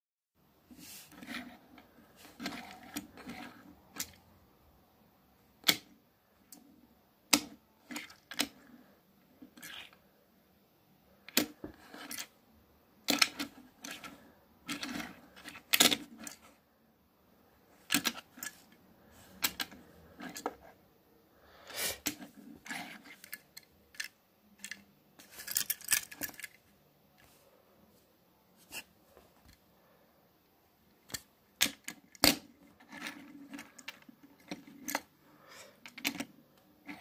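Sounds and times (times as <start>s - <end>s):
toy car handling clicks and scrapes: 0.7s - 4.3s, 5.6s - 10.1s, 11.2s - 12.4s, 13.0s - 16.6s, 17.7s - 20.8s, 21.6s - 26.6s, 31.0s - 37.0s.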